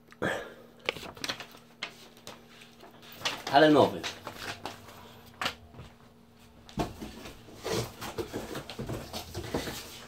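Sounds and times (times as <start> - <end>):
cardboard box rustling: 6.8 - 10.0.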